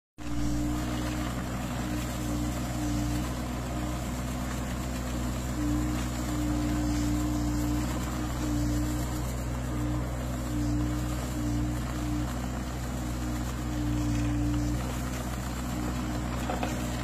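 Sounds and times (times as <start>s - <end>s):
diesel engine running: 0.2s - 17.0s
higher hydraulic hum: 0.2s - 17.0s.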